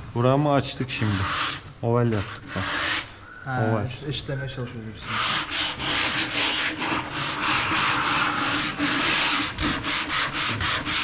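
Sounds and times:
sandpaper rubbing on wood: 1.0 - 3.1, 5.0 - 11.0.

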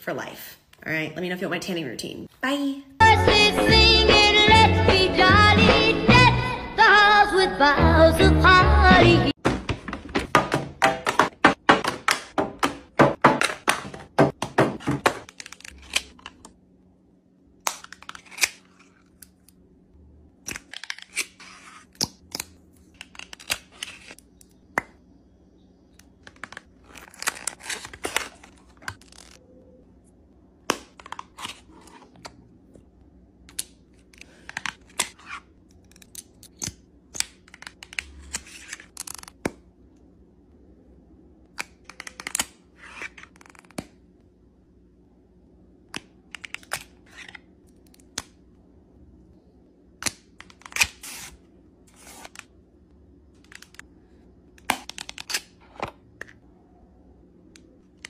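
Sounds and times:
faint steady hum: 12.0 - 58.0.

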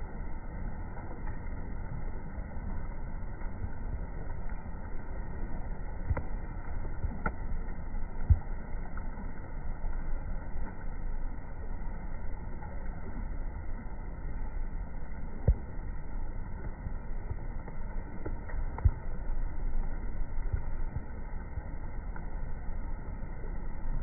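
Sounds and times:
low outdoor rumble: 0.0 - 24.0.

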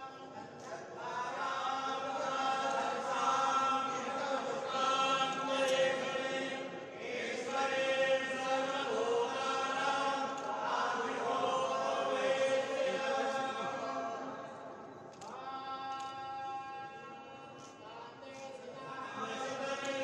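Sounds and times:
person chanting mantras: 0.0 - 20.0.

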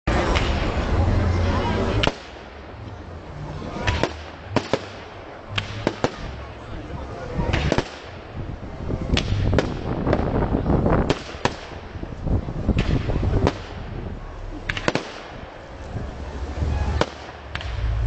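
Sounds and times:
fireworks bangs and cracks: 0.1 - 2.8, 3.7 - 18.0
low rumble: 8.3 - 11.1, 11.7 - 18.0.

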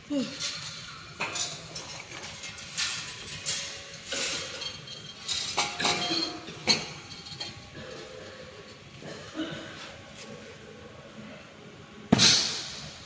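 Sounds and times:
metallic clinks and clanks: 0.2 - 8.8.

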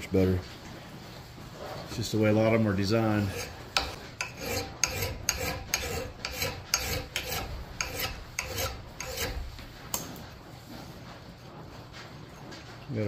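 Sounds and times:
file scraping on axe blade: 3.1 - 10.0.

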